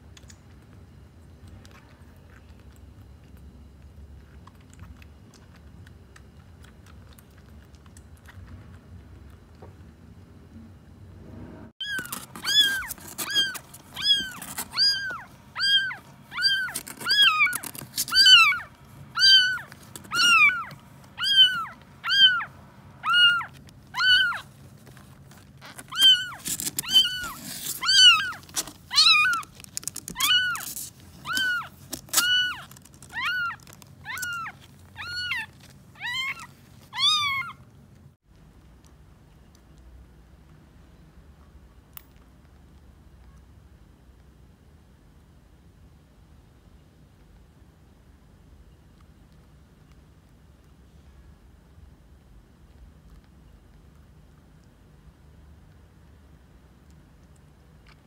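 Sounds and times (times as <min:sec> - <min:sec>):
kitten mewing: 0:11.8 - 0:24.5, 0:25.9 - 0:29.5.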